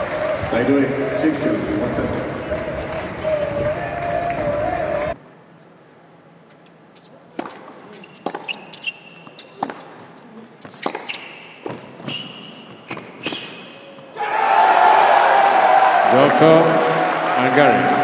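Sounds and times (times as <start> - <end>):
crowd applause: 0.0 - 5.2, 14.2 - 18.0
ball bouncing: 6.5 - 14.1
shoe squeaks: 6.5 - 14.2
racket striking ball: 6.6 - 14.1.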